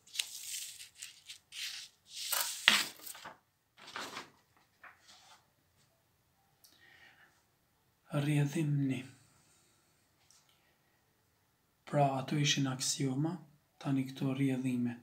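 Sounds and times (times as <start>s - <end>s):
paper rustling and crackling: 0.0s - 5.4s.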